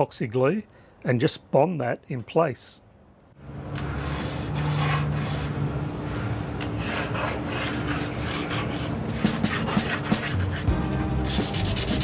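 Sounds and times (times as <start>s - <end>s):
low steady hum: 0.2s - 9.2s
wood being sanded: 6.8s - 10.7s, 11.3s - 12.0s.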